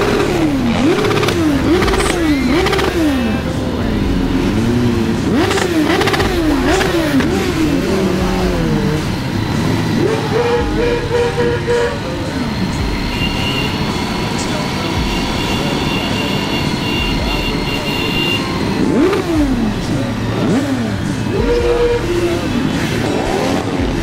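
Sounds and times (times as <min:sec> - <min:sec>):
engine holding a higher note: 0:00.0 - 0:24.0
group of motorcycles running: 0:00.0 - 0:24.0
motorcycle engines revving: 0:00.0 - 0:24.0.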